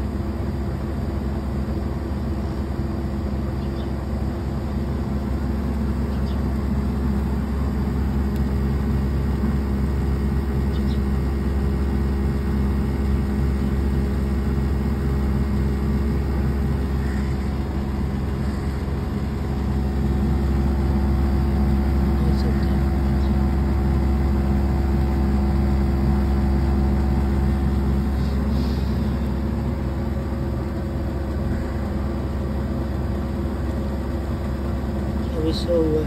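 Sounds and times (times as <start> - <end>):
air conditioner unit humming: 0.0 - 36.0.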